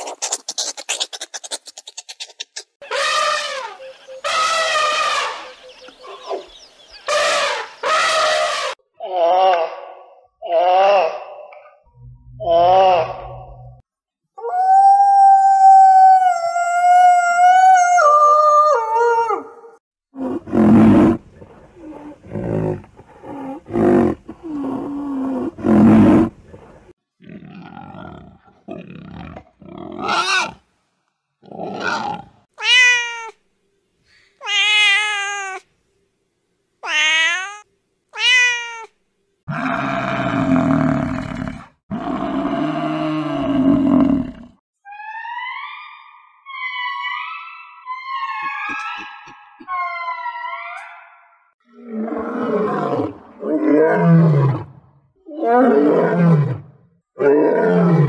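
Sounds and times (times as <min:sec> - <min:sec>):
pigs grunting: 0:27.2 - 0:30.6
pigs squealing: 0:44.9 - 0:51.0.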